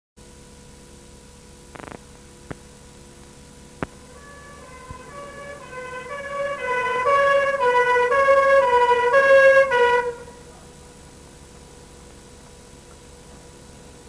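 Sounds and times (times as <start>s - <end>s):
steady hum: 0.2s - 14.0s
short buzz: 3.7s - 10.5s
two-tone siren: 3.8s - 10.5s.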